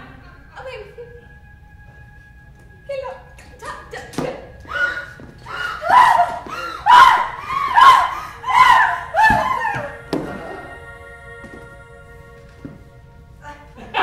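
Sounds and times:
woman screaming: 4.6s - 10.0s.

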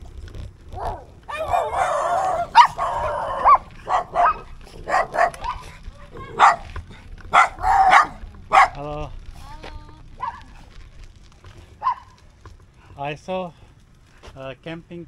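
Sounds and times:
dog barking: 0.7s - 8.9s, 10.2s - 10.6s, 11.8s - 12.2s.

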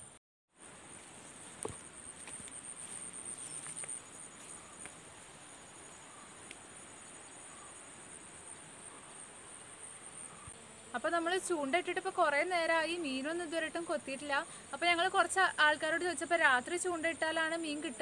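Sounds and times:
insects trilling: 0.6s - 18.0s
footsteps in dry grass: 1.1s - 5.3s.

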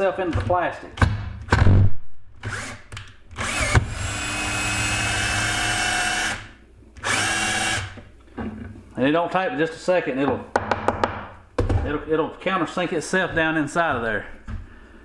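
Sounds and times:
cordless drill driving screw into plastic: 2.4s - 8.0s.

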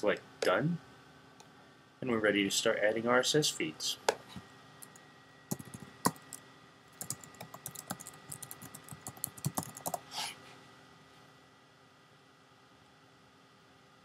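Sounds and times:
typing on computer keyboard: 4.8s - 6.4s, 7.0s - 10.0s.

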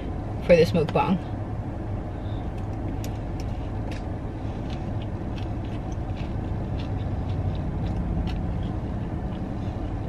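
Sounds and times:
car cabin rumble: 0.0s - 10.0s
person chewing: 2.4s - 10.0s.

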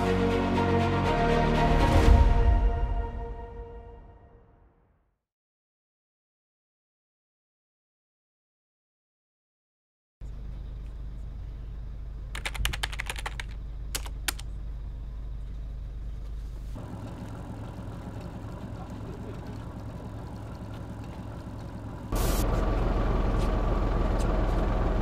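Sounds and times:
low hum in car cabin: 10.2s - 25.0s
sharp clicks: 12.4s - 14.5s.

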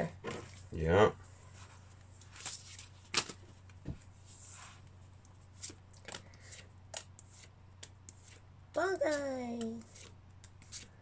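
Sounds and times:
trading cards flipped by hand: 2.2s - 4.0s, 5.3s - 8.4s.

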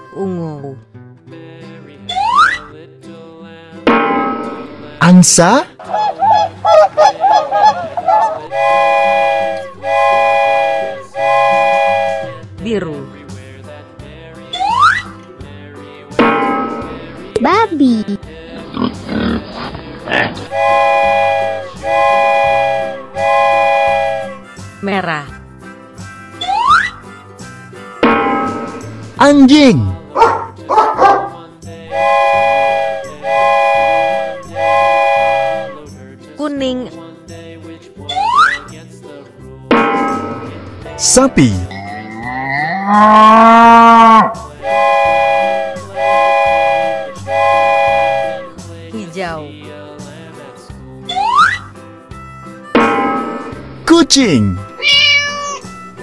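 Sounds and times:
dog barking: 5.8s - 8.5s, 30.1s - 31.4s
goose honking: 5.8s - 12.3s
train whistle blasts: 7.6s - 12.4s, 20.4s - 24.6s, 31.9s - 35.8s, 42.9s - 48.6s.

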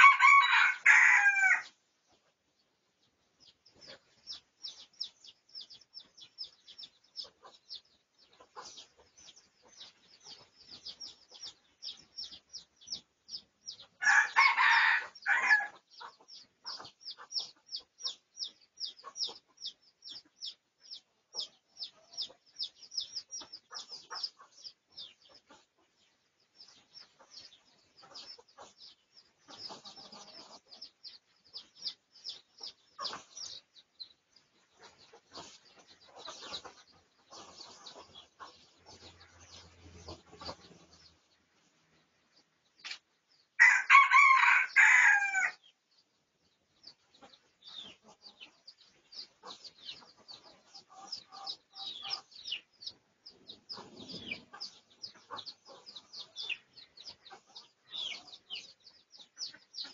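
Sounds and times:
rooster crowing: 0.0s - 1.7s, 14.0s - 15.7s, 43.6s - 45.6s
small birds chirping: 0.0s - 59.9s.

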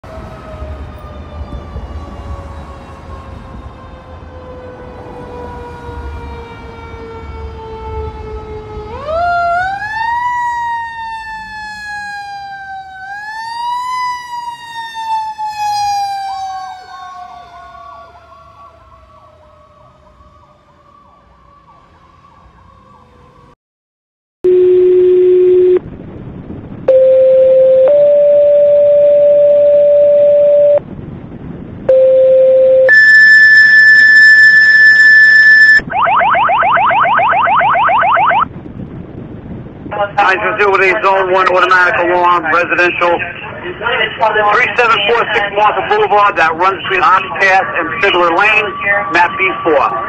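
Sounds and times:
fire engine siren winding: 5.2s - 23.0s, 32.8s - 38.5s
radio alert tones: 24.5s - 25.8s, 26.9s - 30.8s, 31.9s - 38.4s.

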